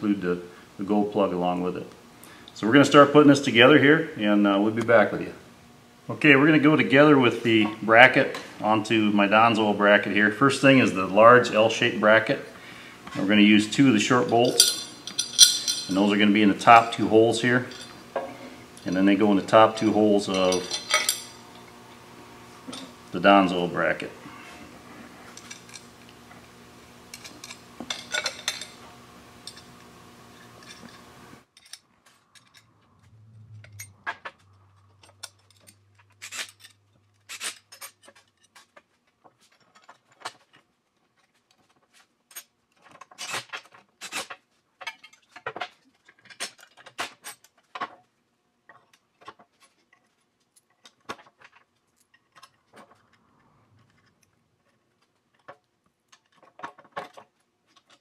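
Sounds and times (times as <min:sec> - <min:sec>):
metal bolts and nuts clinking: 0:13.8 - 0:21.7, 0:22.7 - 0:24.0, 0:27.1 - 0:28.8, 0:29.4 - 0:29.7, 0:30.4 - 0:48.0, 0:48.7 - 0:58.0.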